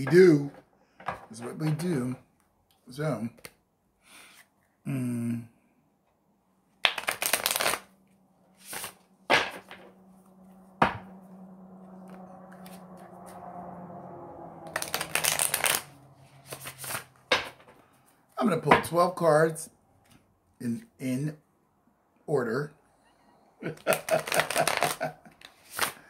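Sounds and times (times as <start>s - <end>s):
card deck snap: 6.8s - 7.8s
cards being shuffled: 6.8s - 7.9s, 8.6s - 9.8s, 12.1s - 13.4s, 14.7s - 17.6s, 23.7s - 26.0s.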